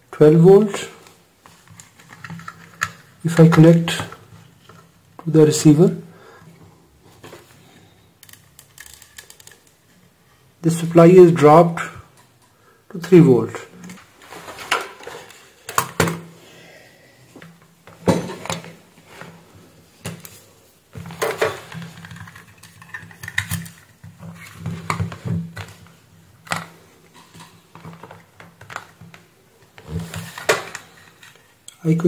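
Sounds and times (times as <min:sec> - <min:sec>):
plastic device and cables clattering: 0:01.5 - 0:04.9, 0:08.2 - 0:09.8, 0:21.0 - 0:31.5.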